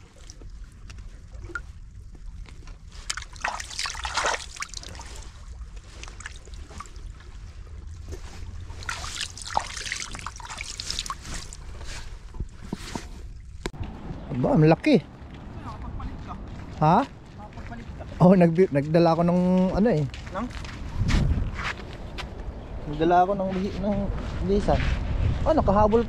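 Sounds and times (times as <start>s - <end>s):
water splashing and trickling: 0.0s - 14.3s.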